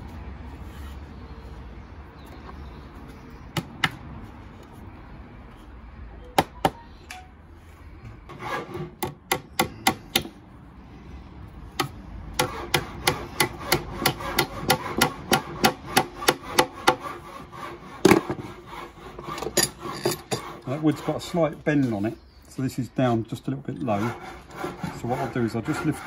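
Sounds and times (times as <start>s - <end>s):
hammer hitting nail into wood: 9.0s - 10.4s.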